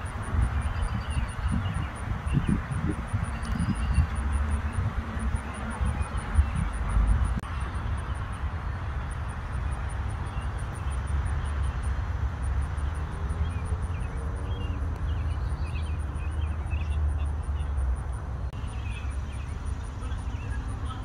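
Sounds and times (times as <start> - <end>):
bird chirps: 0.4 - 4.3, 12.8 - 17.8, 18.5 - 21.0.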